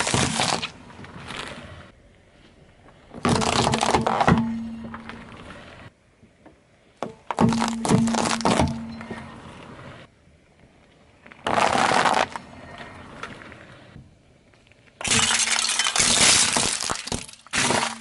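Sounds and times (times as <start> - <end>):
plastic cups shattering: 15.0 - 18.0.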